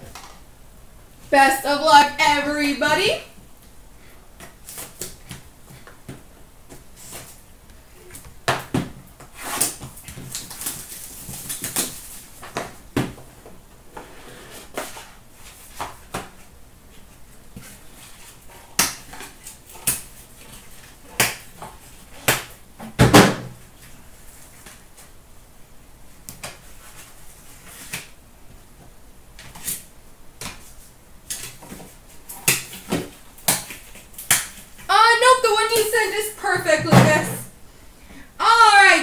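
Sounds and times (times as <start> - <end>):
plastic wrap crinkling: 10.0 - 12.5.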